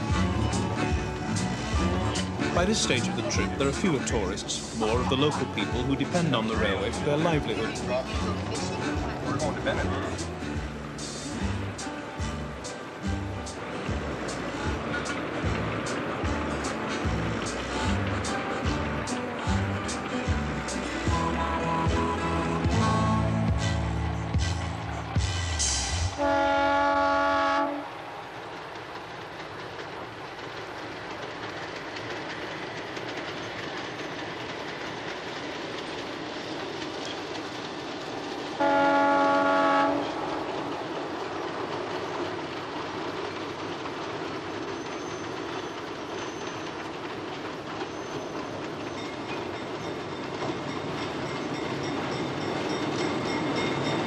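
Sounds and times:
train running on rails: 0.0s - 54.0s
locomotive air horn: 22.7s - 24.0s, 26.2s - 27.9s, 38.6s - 40.2s.

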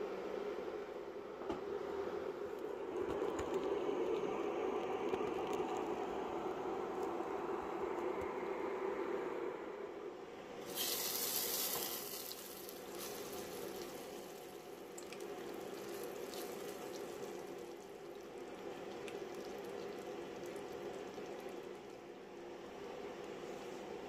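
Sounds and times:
steady hiss: 10.6s - 21.7s
sauce pouring and slopping: 10.7s - 22.1s.

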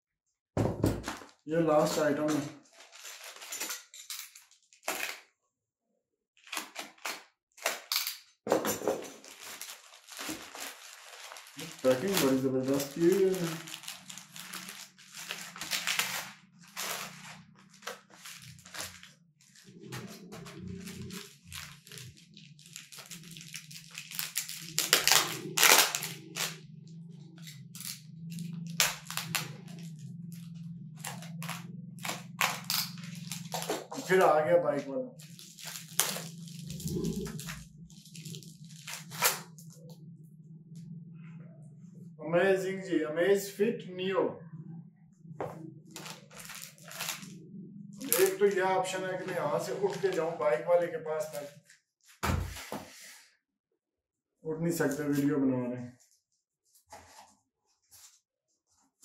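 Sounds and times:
bubble wrap crackling and popping: 1.0s - 3.9s, 9.0s - 26.6s, 27.4s - 34.4s, 35.2s - 39.9s, 45.8s - 47.4s, 48.0s - 48.6s, 49.3s - 50.5s
plastic packaging tearing: 1.9s - 5.2s, 6.4s - 8.2s, 9.0s - 26.6s, 27.4s - 34.4s, 35.2s - 39.8s, 45.9s - 47.4s, 48.0s - 48.6s, 49.2s - 50.4s
steady low hum: 11.1s - 51.4s.

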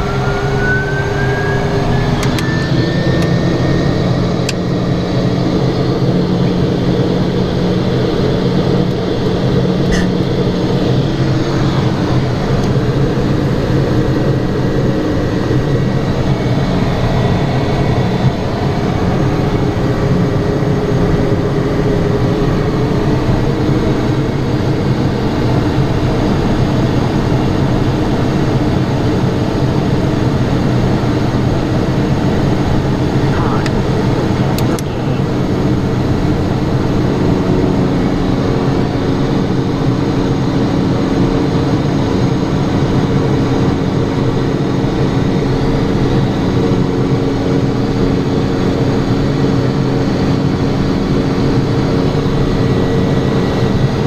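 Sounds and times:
high turbine whine: 0.0s - 54.0s
turboprop engine and propeller drone: 0.0s - 54.0s.

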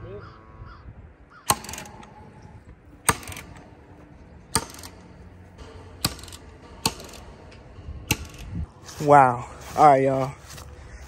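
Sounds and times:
fence stapler shots: 1.5s - 8.6s.

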